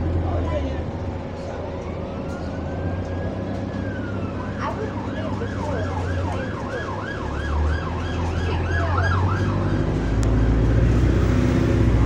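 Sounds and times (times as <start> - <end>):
bus engine droning: 0.0 - 12.0
police siren yelping: 2.0 - 10.6.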